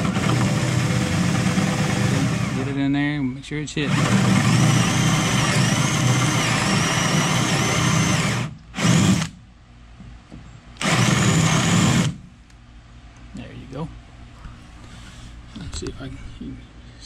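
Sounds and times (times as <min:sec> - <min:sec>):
cordless drill motor whine: 0:00.0 - 0:02.7, 0:03.9 - 0:09.3, 0:10.8 - 0:12.2
drill boring into plywood: 0:00.0 - 0:02.7, 0:03.8 - 0:09.3, 0:10.8 - 0:12.2.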